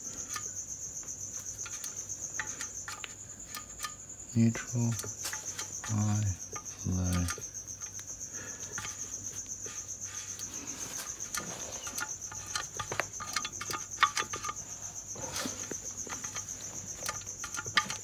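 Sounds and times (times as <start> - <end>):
cast iron clicks and knocks: 0.0 - 18.0
cricket chirping: 0.0 - 18.0.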